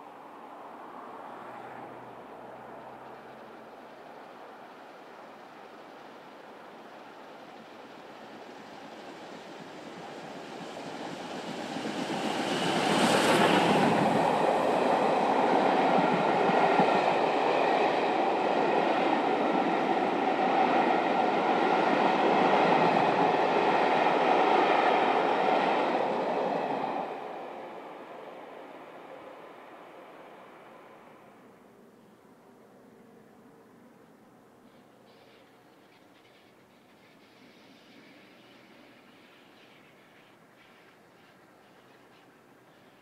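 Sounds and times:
steam locomotive passing at speed: 0.0 - 43.0.

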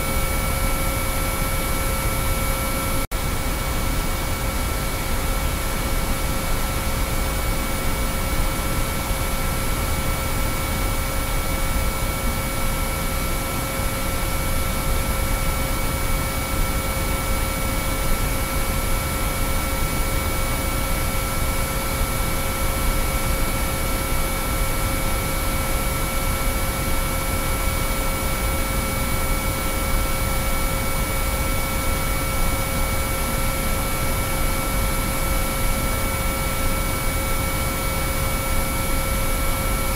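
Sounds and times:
steady sine-wave tones: 0.0 - 39.9.

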